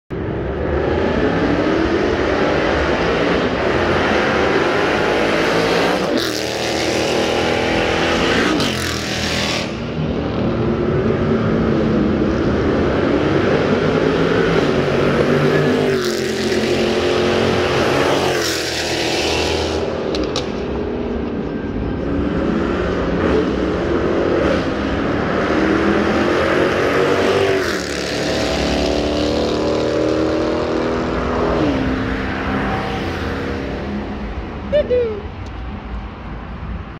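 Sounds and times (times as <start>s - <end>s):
car engine revving hard: 0.7s - 9.8s, 22.2s - 33.6s.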